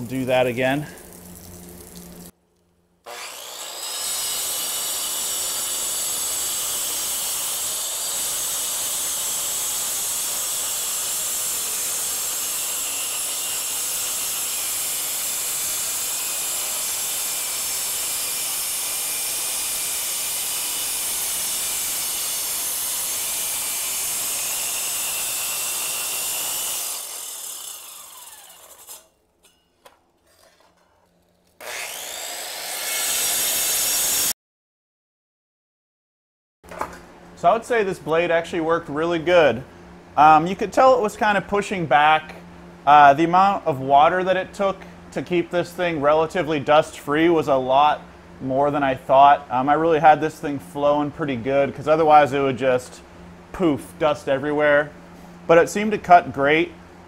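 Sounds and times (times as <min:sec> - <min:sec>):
circular saw cutting concrete: 0:03.1 - 0:29.6, 0:30.2 - 0:34.4.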